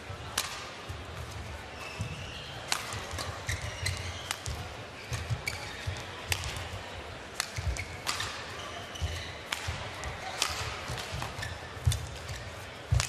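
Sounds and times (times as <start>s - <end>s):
rackets striking shuttlecock: 0.3s - 0.7s, 2.7s - 13.0s
shoes squeaking on court: 1.3s - 6.6s, 7.6s - 9.5s, 10.2s - 13.0s.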